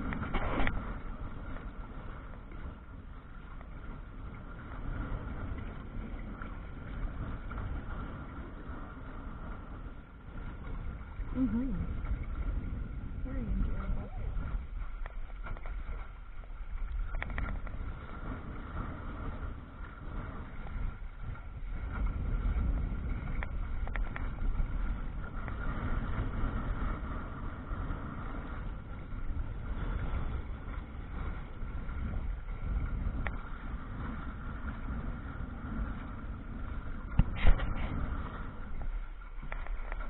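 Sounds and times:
water washing along hull: 0.0s - 40.0s
wind buffeting microphone: 0.0s - 40.0s
faint clicks: 16.8s - 17.8s, 38.8s - 40.0s.

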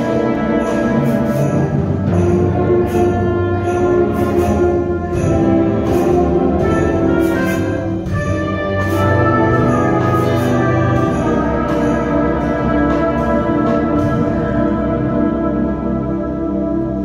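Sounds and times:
brass and woodwind chords: 0.0s - 17.0s.

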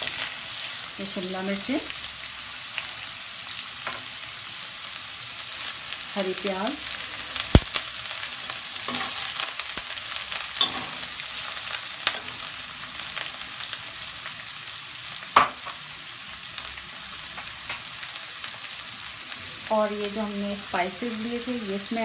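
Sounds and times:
vegetables sizzling in hot oil: 0.0s - 22.0s
metal spatula clinking on pan: 10.6s - 11.0s.

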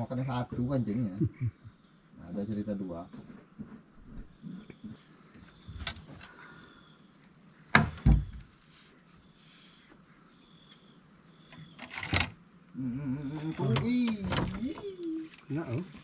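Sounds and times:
sharp knocks and thumps: 7.7s - 8.5s
low wavering wordless voice: 12.8s - 15.3s.

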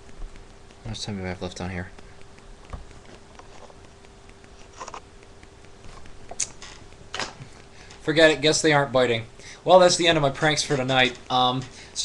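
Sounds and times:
small clicks and rustles: 0.0s - 8.1s
faint steady hum: 0.0s - 12.0s.

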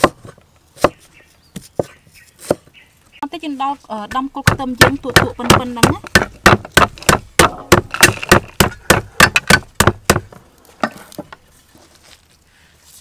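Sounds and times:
cleaver chopping on wooden board: 0.0s - 2.7s, 4.4s - 10.4s.

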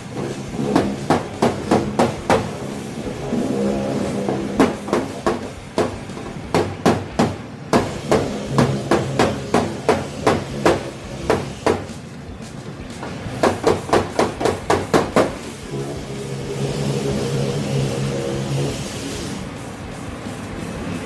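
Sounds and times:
hammer knocking on sheet metal: 0.1s - 2.8s, 4.0s - 12.0s, 13.0s - 15.9s.

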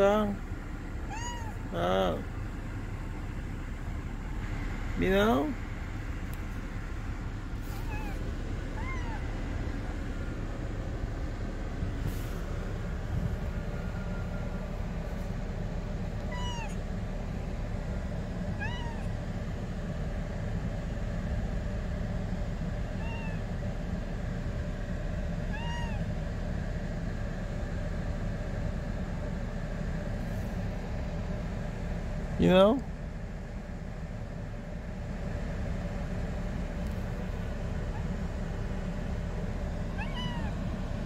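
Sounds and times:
low rumble inside car: 0.0s - 41.0s
cat meowing: 1.0s - 1.7s, 7.7s - 9.4s, 16.2s - 16.8s, 18.5s - 19.2s, 22.9s - 23.5s, 25.4s - 26.1s, 39.9s - 40.6s.

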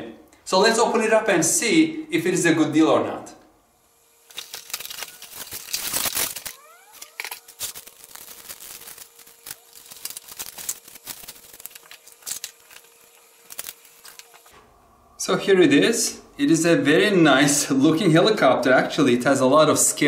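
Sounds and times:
cardboard packaging rustling: 4.2s - 14.5s
twist tie pulled off: 4.3s - 14.5s.

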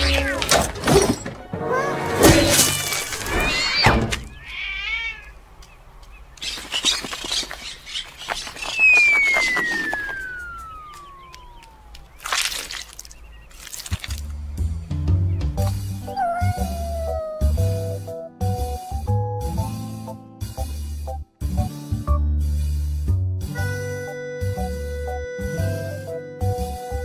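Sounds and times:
whistle falling in pitch: 8.7s - 11.7s.

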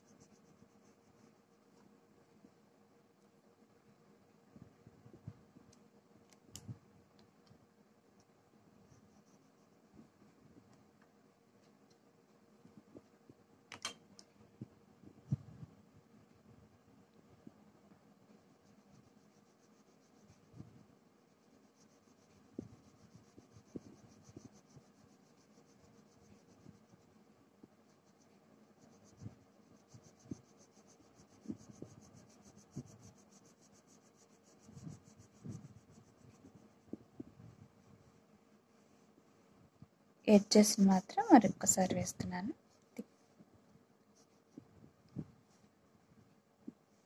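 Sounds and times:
crayon scratching on paper: 0.0s - 1.9s, 8.8s - 9.9s, 18.2s - 37.9s.

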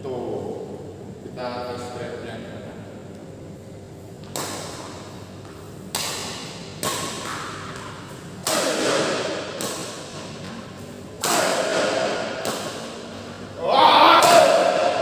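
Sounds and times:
racket smashing shuttlecock: 5.9s - 10.6s, 11.2s - 13.3s, 14.1s - 15.0s.

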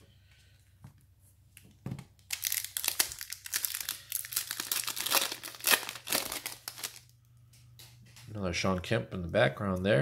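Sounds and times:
foil wrapper crinkling and tearing: 2.2s - 7.1s.

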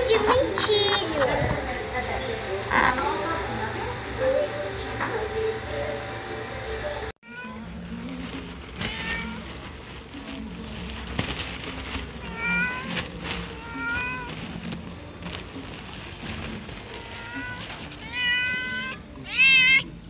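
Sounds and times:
cat meowing: 8.8s - 9.5s, 12.2s - 14.4s, 16.9s - 19.9s.

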